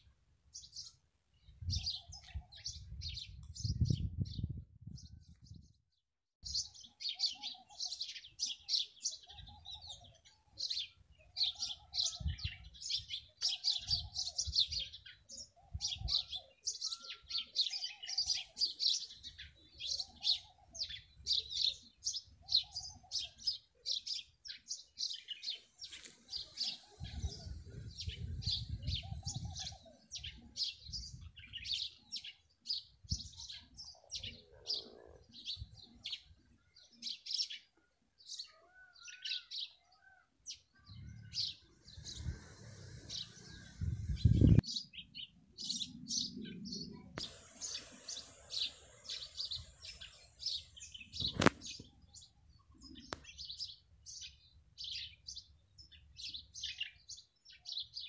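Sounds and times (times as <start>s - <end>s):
small birds chirping: 0.0s - 58.0s
lower bird call: 40.8s - 45.0s.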